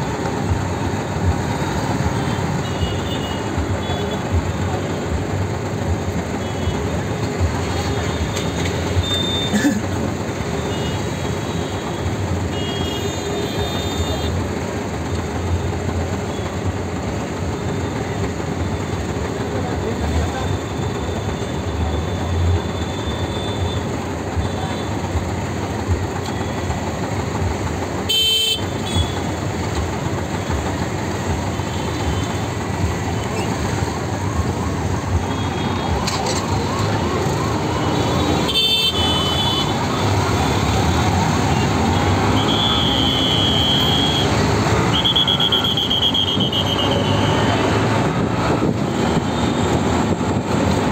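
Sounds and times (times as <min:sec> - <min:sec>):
road traffic rumble: 0:00.0 - 0:50.9
street noise: 0:00.0 - 0:50.9
vehicle horn toot: 0:09.0 - 0:09.6, 0:28.1 - 0:29.3, 0:38.4 - 0:39.8, 0:41.6 - 0:47.5.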